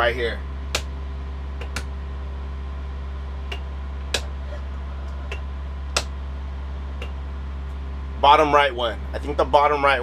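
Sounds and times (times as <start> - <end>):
steady low hum: 0.0 - 10.0
rocker switches clicking: 1.6 - 1.9.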